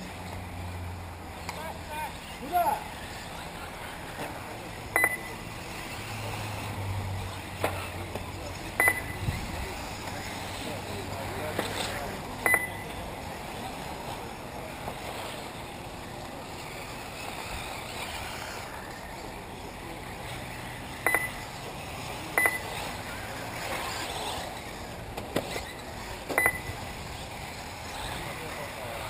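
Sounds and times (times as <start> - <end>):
outdoor noise: 0.0 - 29.0
short electronic beeps: 5.0 - 5.3, 8.8 - 9.2, 12.4 - 12.8, 21.0 - 21.4, 22.4 - 22.7, 26.4 - 26.8.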